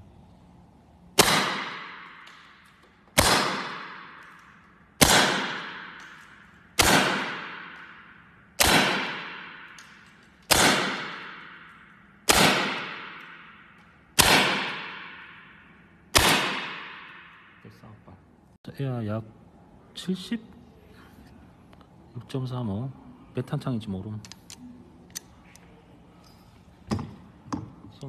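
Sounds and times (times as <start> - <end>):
air rifle shots with ringing tail: 1.2 - 17.6.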